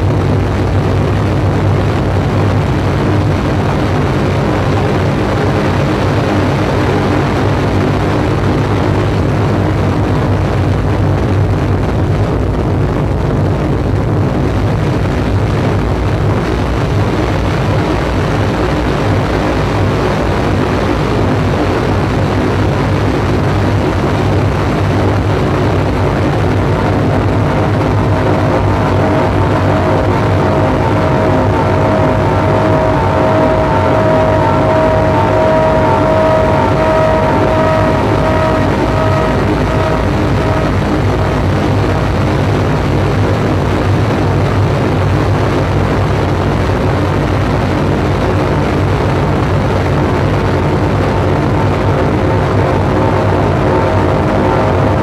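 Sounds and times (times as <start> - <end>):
electronic noise drone: 0.0 - 55.0
strong low hum: 0.0 - 55.0
faint held tones: 25.0 - 42.4.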